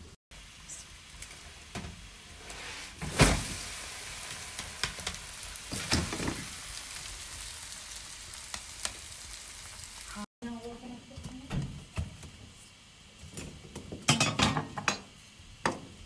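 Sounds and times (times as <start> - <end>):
dough sizzling in butter: 0.4 - 11.4.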